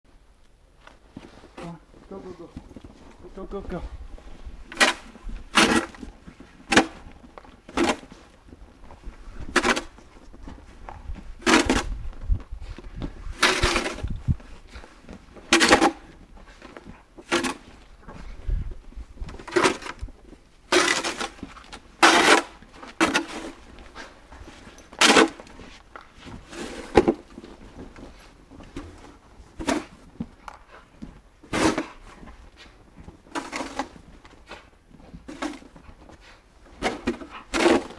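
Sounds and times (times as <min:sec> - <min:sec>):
plastic shovel scraping snow: 0:04.6 - 0:07.0, 0:13.3 - 0:14.8, 0:20.7 - 0:24.1, 0:26.3 - 0:27.3, 0:32.6 - 0:35.6.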